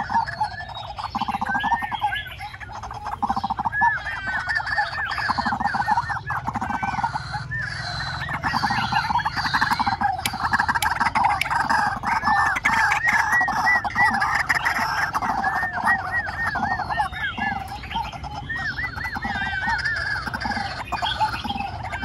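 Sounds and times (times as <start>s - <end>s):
bird calling repeated notes: 0.0s - 22.0s.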